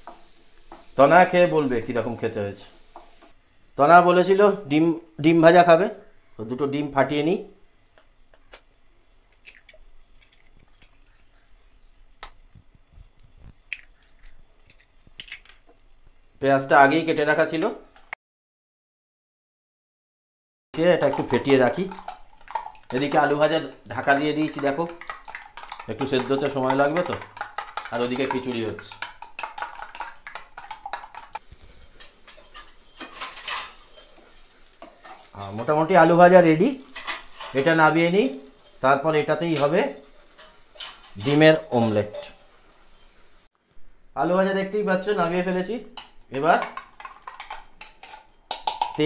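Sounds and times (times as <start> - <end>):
eggshells tapping and cracking: 9.3 - 11.0, 12.2 - 15.8, 21.0 - 31.5, 46.0 - 49.0
metal utensils clinking on steel: 21.0 - 43.1
wooden spatula scraping frying pan: 21.0 - 43.4.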